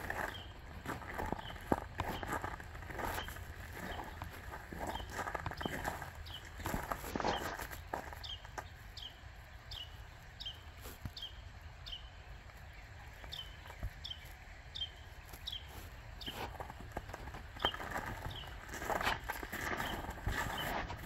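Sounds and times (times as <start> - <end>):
footsteps: 0.0 - 8.7, 15.1 - 21.0
small bird calling: 0.0 - 16.8.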